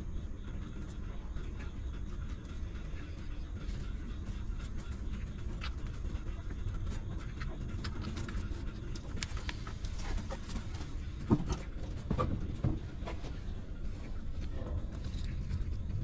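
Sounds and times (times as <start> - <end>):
steady low rumble: 0.0 - 16.0
puppies suckling smacking clicks: 2.2 - 12.4.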